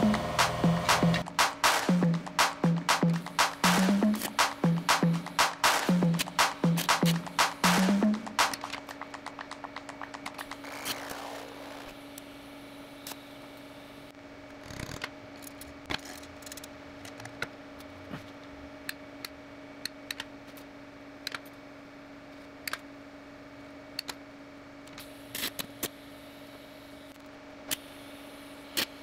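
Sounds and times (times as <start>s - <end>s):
steady low hum: 0.0s - 14.4s.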